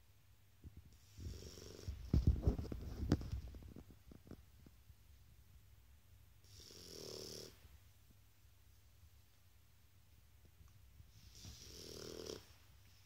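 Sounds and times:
dog snoring: 1.0 - 2.0, 6.4 - 7.6, 11.2 - 12.5.

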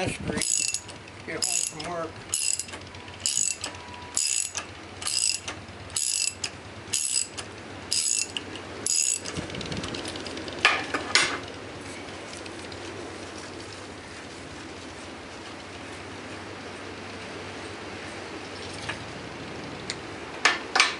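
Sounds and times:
sharp metallic clinks: 0.4 - 9.3
ratchet wrench clicking: 0.4 - 9.4.

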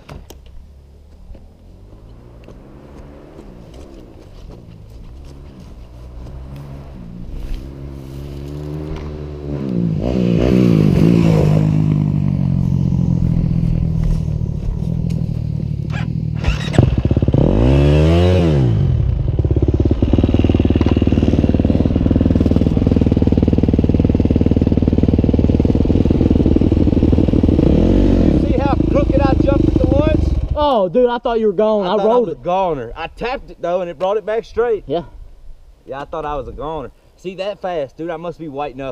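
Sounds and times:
dirt bike engine revving: 1.7 - 30.8.

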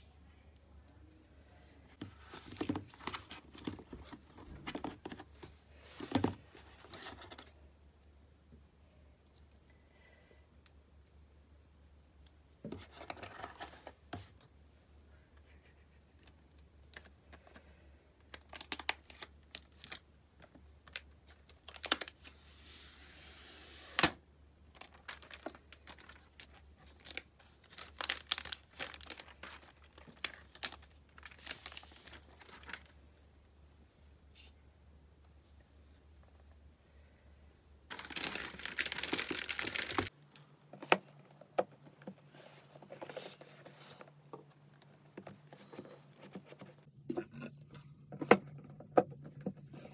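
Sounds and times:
plastic crinkling: 24.7 - 33.0, 37.9 - 40.1.

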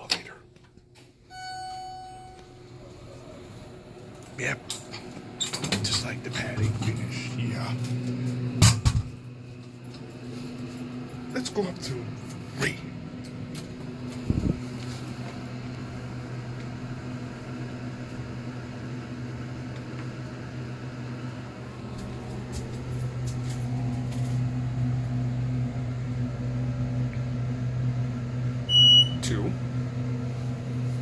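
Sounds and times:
short high beep: 1.3 - 2.5, 28.7 - 29.2.

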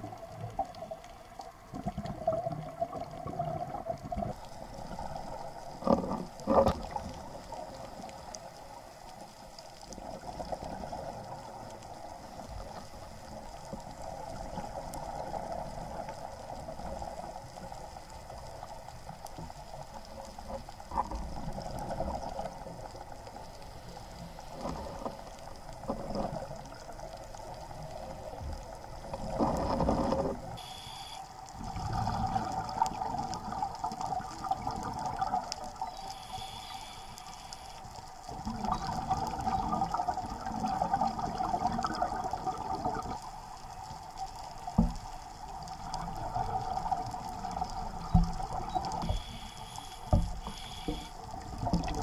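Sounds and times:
steady underwater hiss: 0.0 - 52.0
bubbles gurgling: 1.6 - 7.8, 25.9 - 30.8, 31.6 - 36.0, 38.3 - 43.3, 44.8 - 49.3, 51.3 - 52.0.

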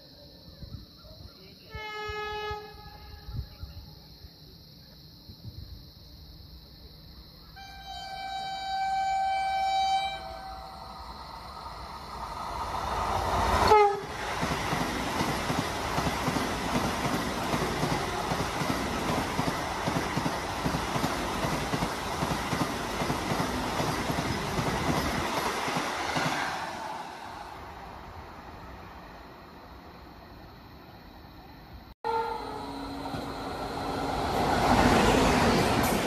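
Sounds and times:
train horn: 1.7 - 3.5, 7.6 - 10.9, 13.6 - 14.2, 32.0 - 34.1
electric train passing at speed: 7.6 - 36.0.

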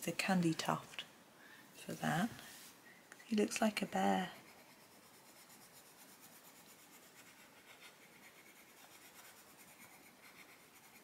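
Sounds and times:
coloured pencil scratching on paper: 3.6 - 11.0.

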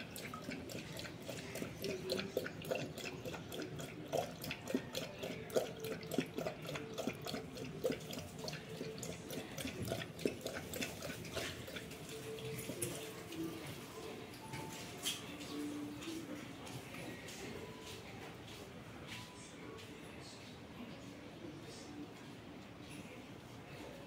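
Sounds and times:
dog lapping water: 0.0 - 14.4.

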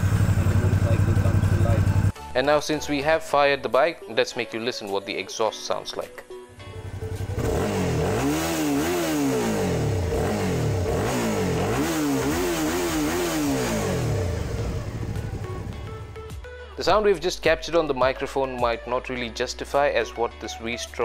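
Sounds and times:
motorcycle engine idling and revving: 0.0 - 2.1, 6.6 - 16.4.

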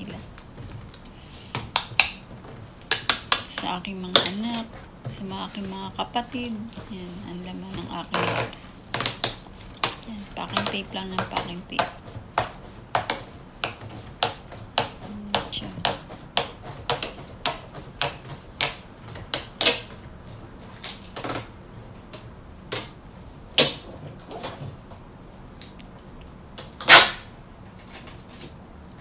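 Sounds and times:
hands tapping tape on cardboard: 2.8 - 4.6, 8.2 - 20.0
loud sharp snap: 26.7 - 27.3.

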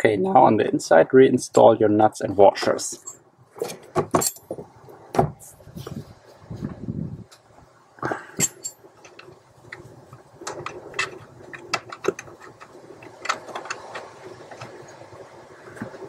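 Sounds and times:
soft handling noise: 5.3 - 7.6.

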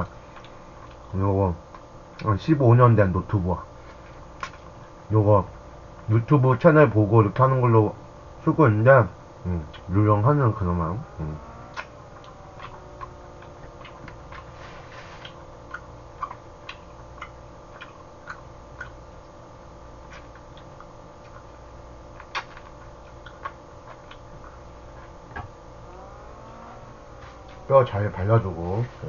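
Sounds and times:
steady low hum: 0.0 - 29.0
lip smacks while eating: 15.2 - 19.4, 20.0 - 21.5, 22.1 - 24.6.

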